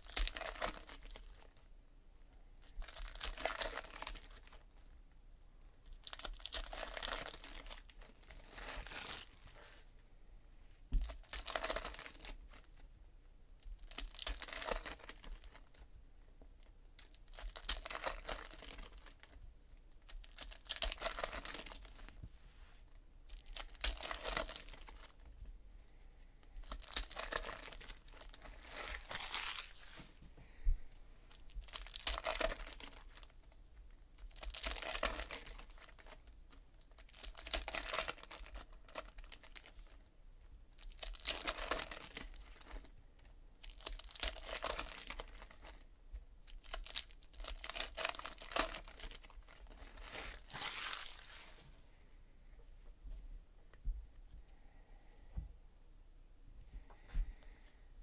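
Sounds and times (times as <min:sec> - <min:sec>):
foil wrappers tearing and crinkling: 0:00.0 - 0:01.6, 0:02.7 - 0:04.6, 0:05.8 - 0:09.8, 0:11.0 - 0:12.7, 0:13.8 - 0:15.8, 0:17.0 - 0:19.4, 0:20.0 - 0:22.1, 0:23.3 - 0:25.2, 0:26.6 - 0:30.0, 0:31.3 - 0:33.5, 0:34.1 - 0:40.0, 0:40.8 - 0:42.9, 0:43.6 - 0:45.8, 0:46.5 - 0:51.6.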